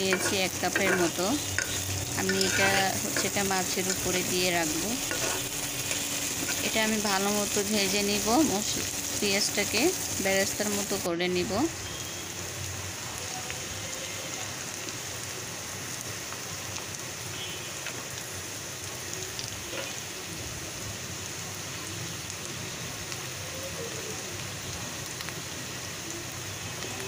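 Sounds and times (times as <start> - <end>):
spatula scraping a pan: 0.0 - 7.0
onions sizzling in hot oil: 0.0 - 27.0.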